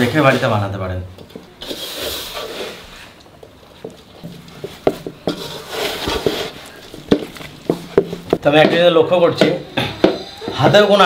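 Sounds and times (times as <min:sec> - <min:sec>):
hands kneading wet dough: 0:00.0 - 0:11.0.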